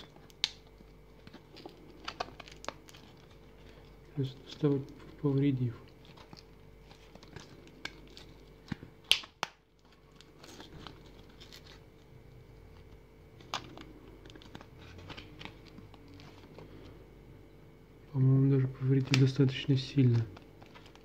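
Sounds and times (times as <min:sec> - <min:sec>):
blister pack being torn open: 0:01.3 - 0:03.8, 0:05.9 - 0:11.9
plastic snapping: 0:07.2 - 0:09.9, 0:19.0 - 0:19.4.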